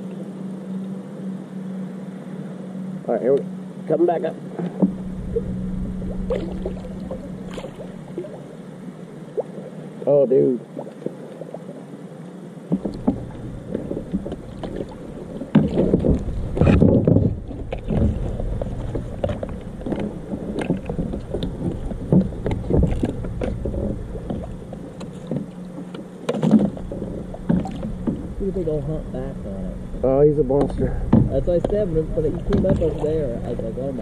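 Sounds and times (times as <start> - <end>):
steady low rumble: 0.0 - 10.0, 11.9 - 34.0
loud thumps: 15.5 - 18.4, 30.5 - 33.0
plastic kayak knocking and bumping: 15.5 - 25.5, 26.2 - 28.3, 30.6 - 33.0.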